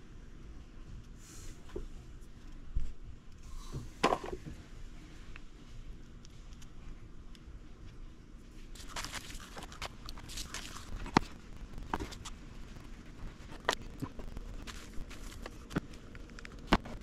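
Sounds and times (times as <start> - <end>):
crinkling and rustling: 7.8 - 17.0.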